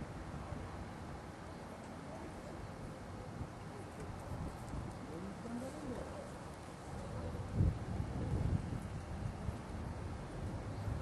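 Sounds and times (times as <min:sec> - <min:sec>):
wind buffeting microphone: 0:03.3 - 0:11.0.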